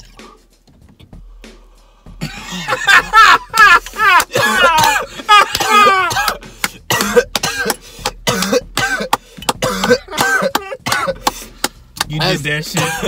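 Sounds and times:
laughter: 2.2s - 5.6s
man coughing: 2.2s - 11.5s, 12.6s - 13.0s.

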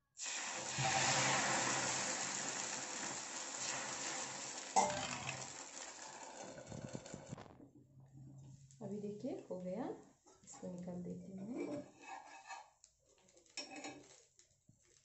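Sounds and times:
batter sizzling on hot griddle: 0.0s - 7.3s.

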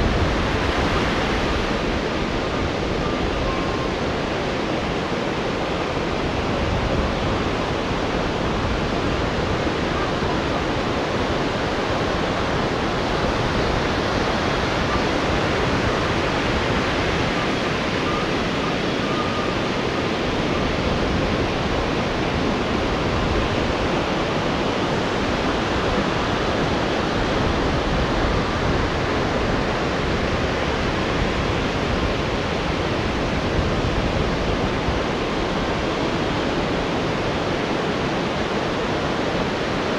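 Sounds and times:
rough sea surf breaking: 0.0s - 39.9s.

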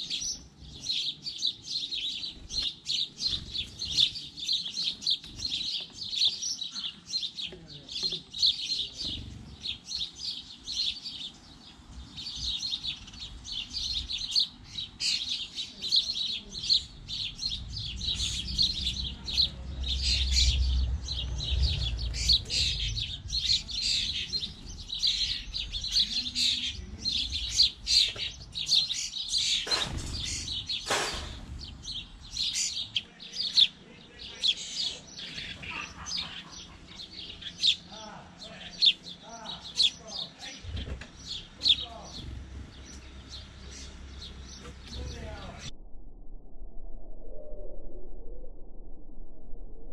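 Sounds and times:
sparrows chirping: 0.0s - 45.7s
low rumble: 16.6s - 28.6s, 29.9s - 32.9s, 42.1s - 49.9s.

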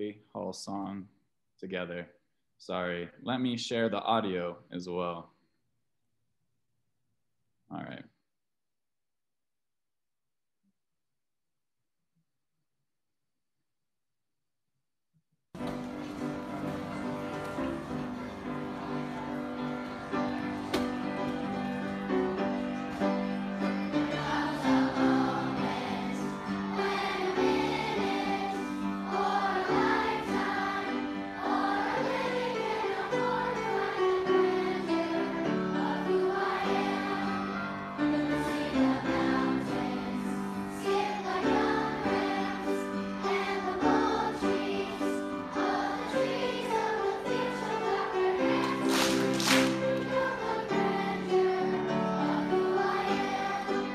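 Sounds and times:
choir singing with instruments: 15.8s - 53.9s.

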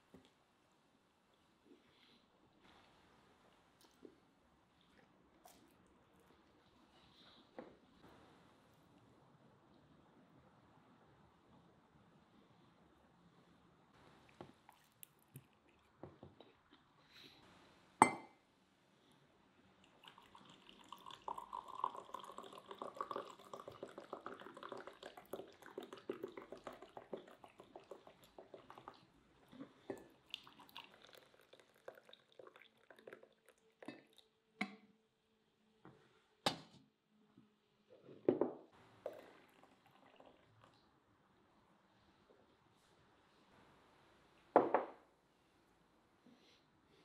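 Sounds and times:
tea pouring into glass mug: 19.8s - 34.8s, 39.0s - 40.8s
hot water running into glass: 20.0s - 29.0s, 29.9s - 33.4s.

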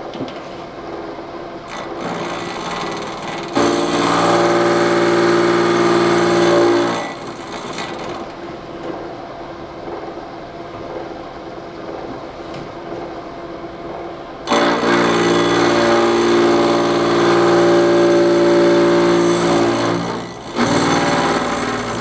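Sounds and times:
milling machine cutting steel: 1.7s - 8.4s, 14.4s - 22.0s.

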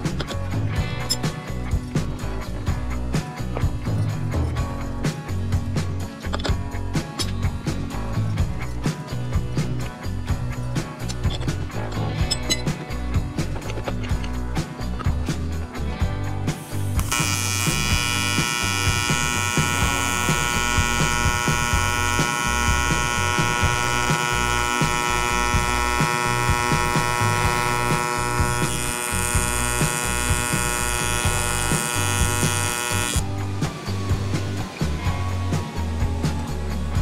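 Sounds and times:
welding arc buzzing: 16.7s - 33.3s.

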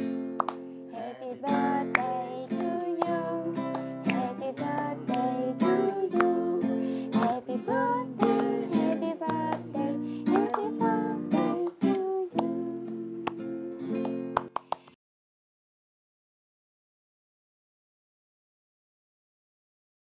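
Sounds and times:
acoustic guitar strumming: 0.0s - 14.5s
man singing: 0.9s - 13.1s.

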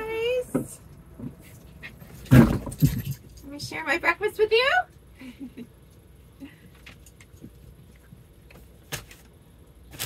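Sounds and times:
low steady hum: 0.0s - 10.0s
handling clicks and rustles: 1.3s - 3.7s.

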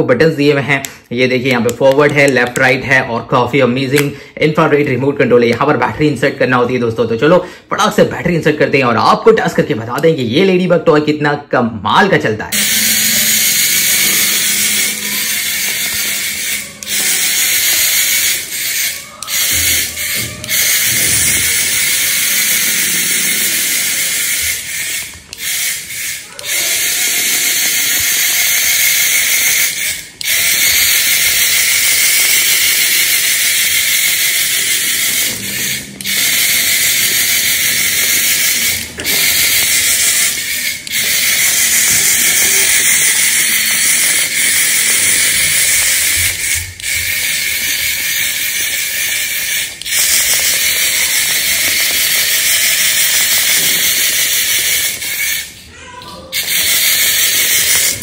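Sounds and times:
toy motor and gears whirring: 12.5s - 58.0s.

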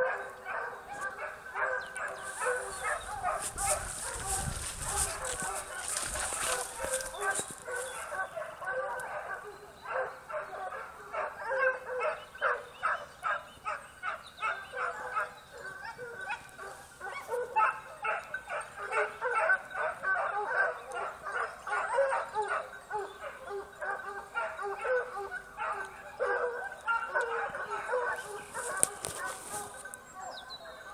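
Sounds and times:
hounds baying: 0.0s - 30.9s.

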